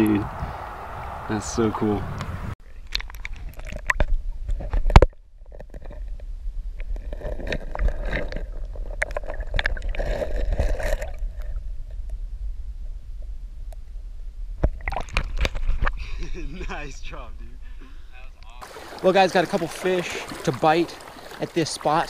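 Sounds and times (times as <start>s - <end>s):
underwater clicks and knocks: 2.8s - 6.2s.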